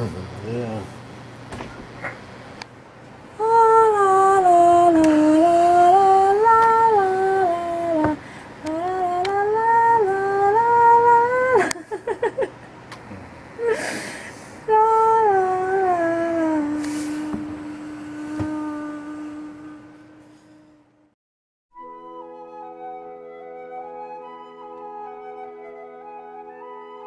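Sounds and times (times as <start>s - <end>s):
person humming: 3.4s - 12.1s, 13.0s - 21.0s.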